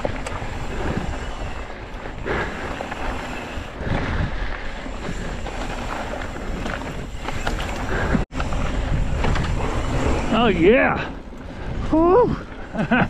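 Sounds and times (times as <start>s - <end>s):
bike tyres rumbling on gravel: 0.0s - 13.0s
wind buffeting microphone: 0.0s - 13.0s.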